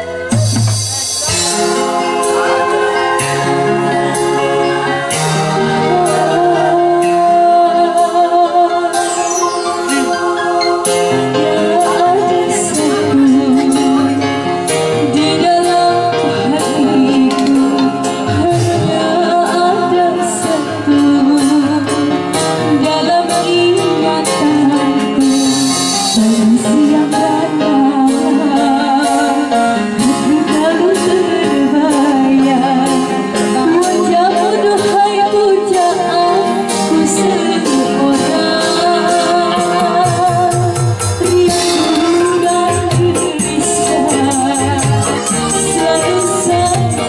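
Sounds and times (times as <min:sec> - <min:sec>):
hand drums beat: 0:00.0 - 0:02.5, 0:39.5 - 0:47.0
electric guitar: 0:00.0 - 0:47.0
electric keyboard: 0:00.0 - 0:47.0
woman singing into microphone: 0:01.2 - 0:47.0.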